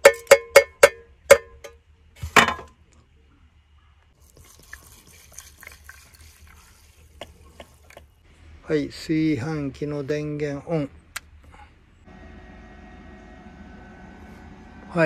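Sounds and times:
water trickling onto rice: 0:04.2 - 0:08.0.

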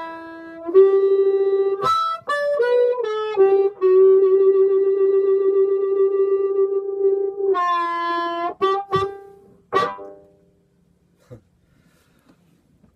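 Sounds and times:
amplified harmonica notes: 0:00.0 - 0:10.3.

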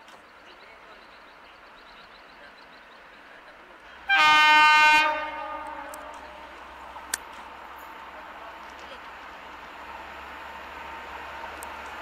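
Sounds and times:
locomotive horn blast: 0:04.1 - 0:06.5.

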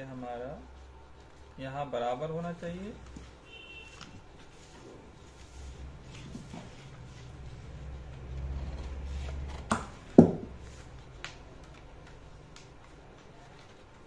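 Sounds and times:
sharp knocks: 0:09.6 - 0:10.6.

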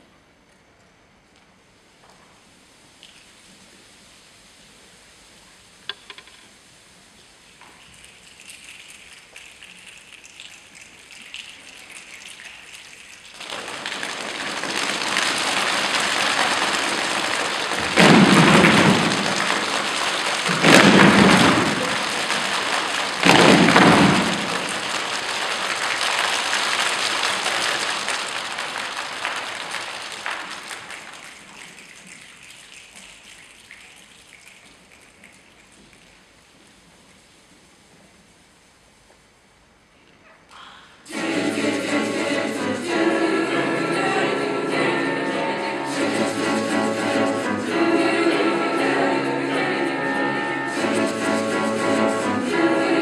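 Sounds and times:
rain hiss: 0:01.9 - 0:40.1, 0:40.9 - 0:53.0
thunder rumbles: 0:14.6 - 0:25.3.

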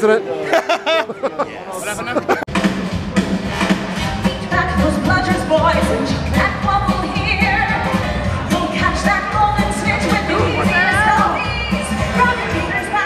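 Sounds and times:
amplified band music: 0:01.8 - 0:13.0
woman singing into microphone: 0:04.3 - 0:13.0.

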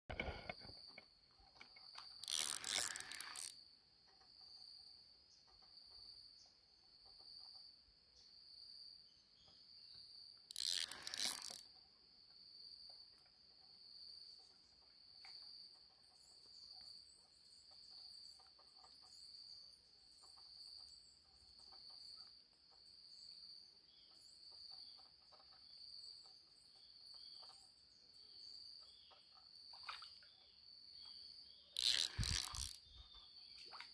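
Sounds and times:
insect buzzing: 0:02.0 - 0:03.6, 0:10.5 - 0:11.8, 0:31.0 - 0:33.1.

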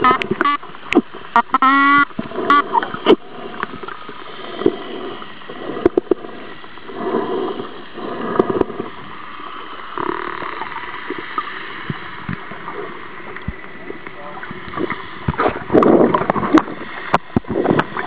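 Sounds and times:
water gurgling and bubbling underwater: 0:00.0 - 0:18.0.

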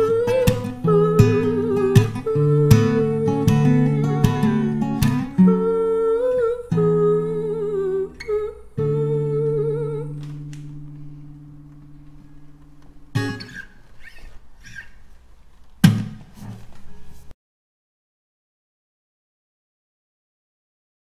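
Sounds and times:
person humming a melody: 0:00.0 - 0:10.6
acoustic guitar strumming: 0:00.0 - 0:15.0, 0:15.8 - 0:17.3.

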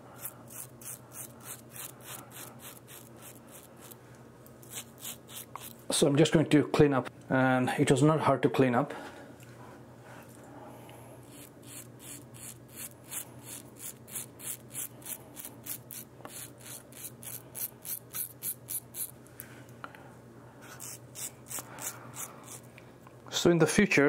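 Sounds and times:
razor scraping stubble: 0:00.2 - 0:04.0, 0:04.6 - 0:05.8, 0:11.2 - 0:19.2, 0:20.6 - 0:22.7.

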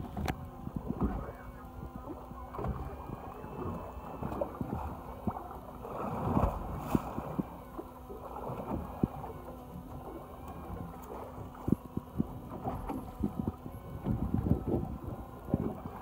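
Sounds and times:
steady low hum: 0:00.0 - 0:16.0
water sloshing against boat hull: 0:00.0 - 0:16.0
wind on microphone: 0:10.6 - 0:16.0.

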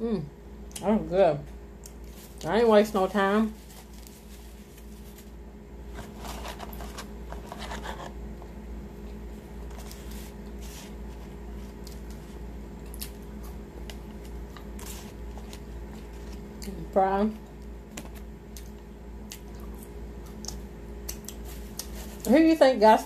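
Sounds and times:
steady low hum: 0:00.0 - 0:23.0
paper wrappers crinkling: 0:02.0 - 0:08.1.

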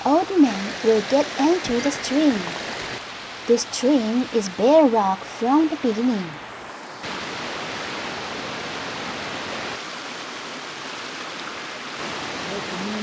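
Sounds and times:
stream rushing over rock: 0:00.0 - 0:13.0.

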